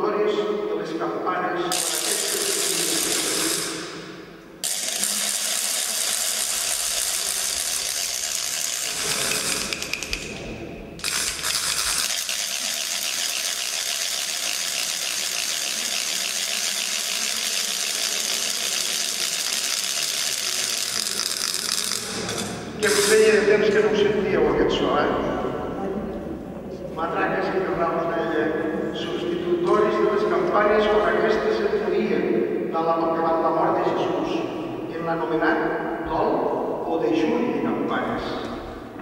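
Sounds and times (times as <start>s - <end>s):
wooden ratchet rattles clattering: 4.6s - 10.3s, 11.0s - 23.2s.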